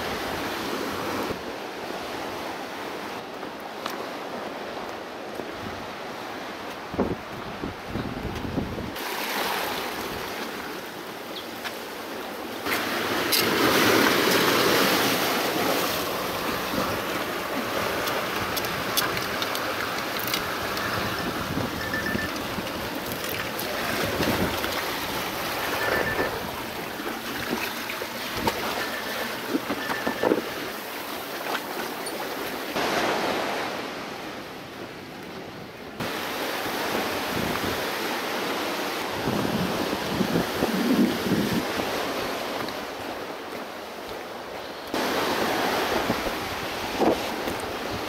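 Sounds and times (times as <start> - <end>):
surf washing against rocks: 0.0 - 35.0, 36.0 - 48.0
wind blowing on microphone: 6.7 - 9.0, 20.4 - 26.9, 39.0 - 42.8
wind buffeting microphone: 20.5 - 27.6.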